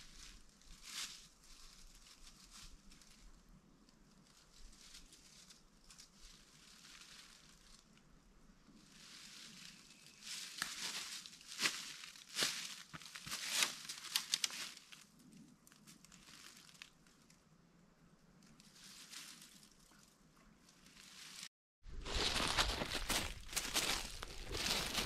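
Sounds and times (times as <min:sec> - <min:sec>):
footsteps crunching dry leaves: 0:00.0 - 0:03.2, 0:04.5 - 0:07.8, 0:08.8 - 0:15.0, 0:18.6 - 0:20.0, 0:20.7 - 0:25.0.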